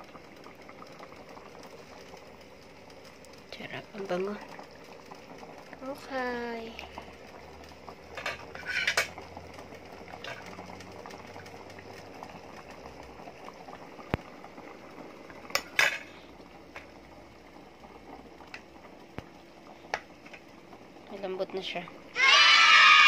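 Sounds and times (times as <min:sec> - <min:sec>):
utensils clinking on pot and plate: 0:08.2 - 0:09.2, 0:15.6 - 0:16.1.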